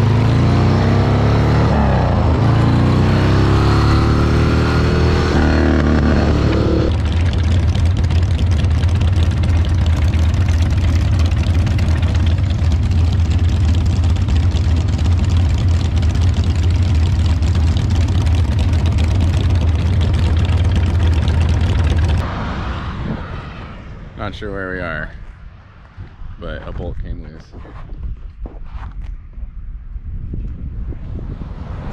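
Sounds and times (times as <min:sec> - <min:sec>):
motorcycle engine slowing: 0:00.0 - 0:22.2
motorcycle engines idling: 0:06.9 - 0:22.2.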